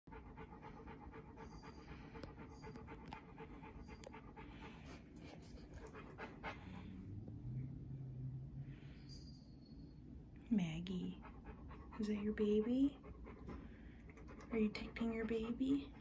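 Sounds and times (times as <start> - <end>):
dog panting: 0.1 - 7.1, 11.0 - 16.0.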